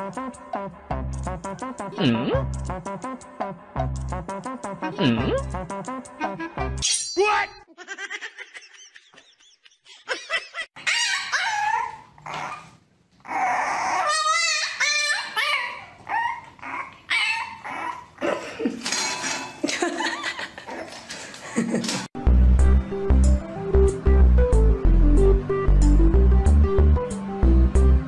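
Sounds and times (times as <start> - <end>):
puppy whining and yipping: 10.8 - 18.2.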